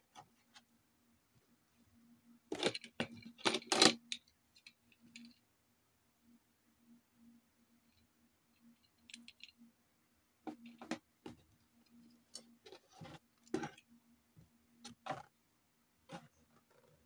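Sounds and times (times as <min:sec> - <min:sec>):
knocks and rustles of handled parts: 0:02.5 - 0:05.3, 0:10.5 - 0:11.6.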